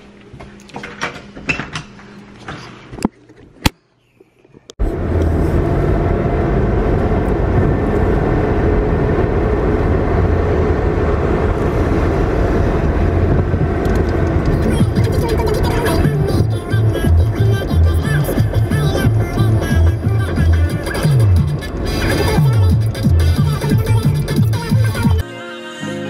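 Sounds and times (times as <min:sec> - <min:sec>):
car cabin road rumble: 0:04.6 - 0:25.2.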